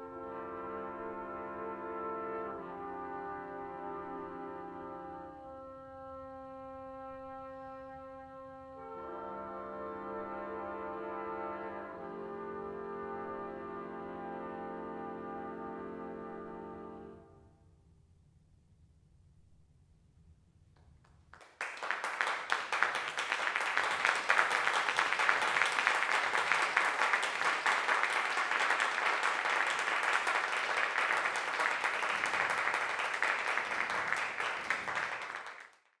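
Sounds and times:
audience applause: 0:21.3 - 0:36.0.

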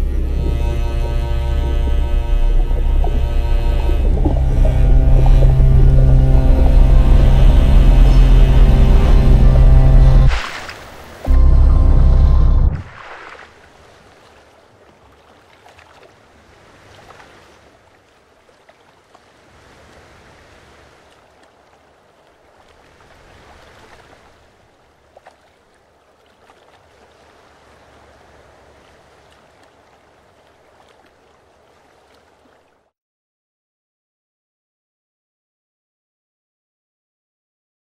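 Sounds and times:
small waves lapping: 0:00.0 - 0:11.4, 0:12.8 - 0:32.9
small water splashes: 0:10.2 - 0:11.3, 0:12.8 - 0:32.9.

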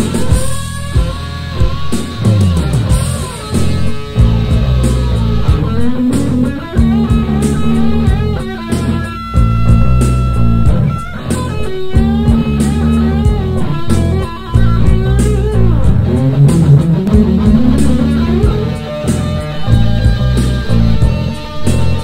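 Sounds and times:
bass guitar: 0:00.0 - 0:22.0
drums playing steady beat: 0:00.0 - 0:22.0
electric guitar: 0:00.0 - 0:22.0.

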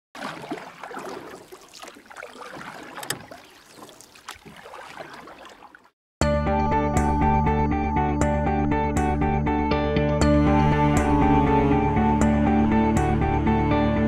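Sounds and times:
water splashing: 0:00.1 - 0:06.0.

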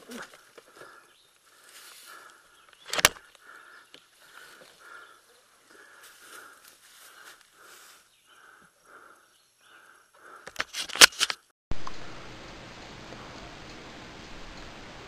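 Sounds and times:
steady hiss: 0:11.8 - 0:15.0.

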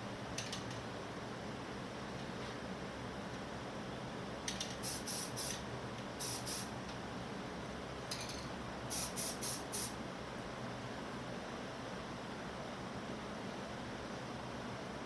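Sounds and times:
box fan humming: 0:00.0 - 0:15.0
aerosol spray paint hissing: 0:04.8 - 0:05.6, 0:06.2 - 0:06.7, 0:08.9 - 0:10.0.

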